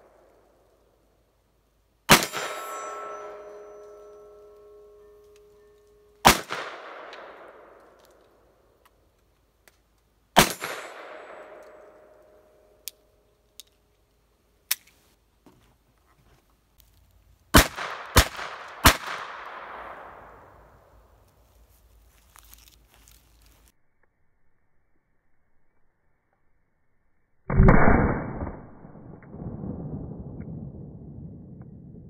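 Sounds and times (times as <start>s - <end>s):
steel target ringing: 2.1s - 6.3s.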